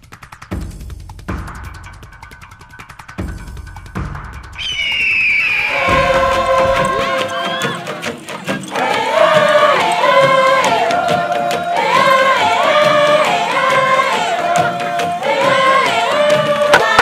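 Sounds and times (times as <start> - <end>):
group of voices singing: 5.7 - 17.0.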